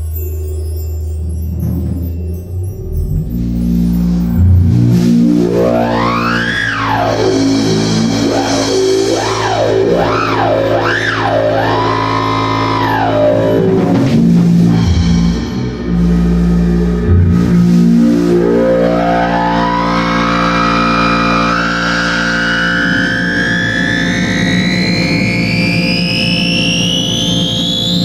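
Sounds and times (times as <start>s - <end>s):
steady low drone: 0.0s - 28.0s
synthesizer gliding in pitch: 1.4s - 28.0s
drum kit playing: 4.0s - 19.0s.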